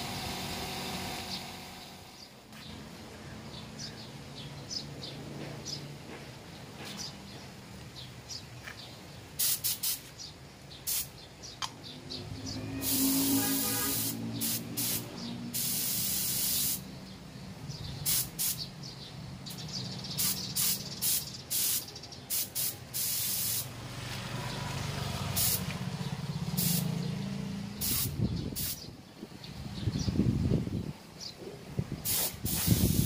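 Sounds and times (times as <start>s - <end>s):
spray gun hissing air: 0.0s - 1.9s, 9.4s - 10.1s, 10.9s - 11.1s, 12.8s - 16.9s, 18.0s - 18.7s, 20.2s - 23.7s, 25.4s - 25.7s, 26.6s - 26.9s, 27.7s - 28.9s, 32.0s - 33.0s.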